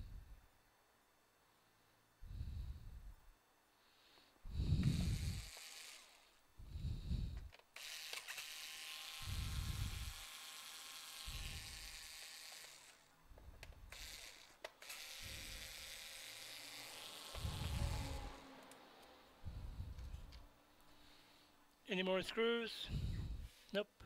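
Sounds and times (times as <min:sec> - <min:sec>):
electric screwdriver running: 0:04.6 - 0:06.4, 0:07.8 - 0:13.1, 0:13.7 - 0:18.8
soft low puffs: 0:19.4 - 0:21.6, 0:22.8 - 0:23.7.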